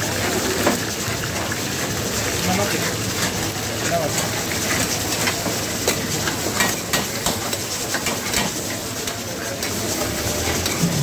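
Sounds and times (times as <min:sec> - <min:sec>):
chicken sizzling in oil: 0:00.0 - 0:11.0
metal ladle scraping iron pot: 0:10.4 - 0:11.0.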